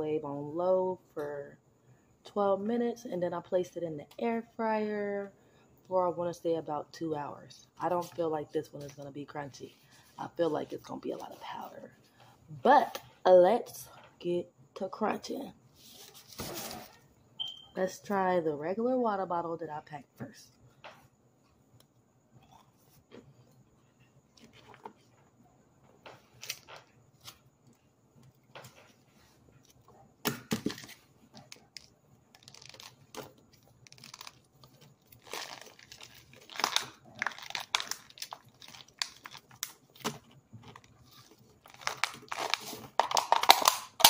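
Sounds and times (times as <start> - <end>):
plastic bottle crinkling: 30.5 - 44.0.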